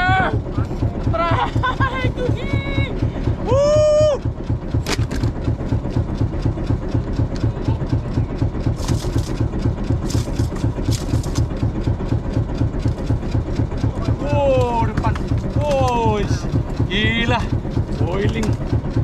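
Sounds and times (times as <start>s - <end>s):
boat engine idling: 0.0s - 19.0s.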